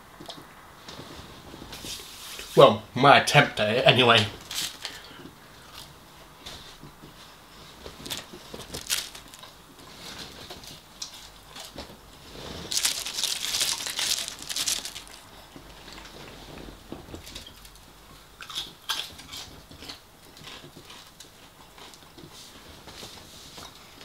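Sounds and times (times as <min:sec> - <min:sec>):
chewing and crunching fried food: 0:04.4 - 0:06.0, 0:07.8 - 0:16.4, 0:17.1 - 0:22.6.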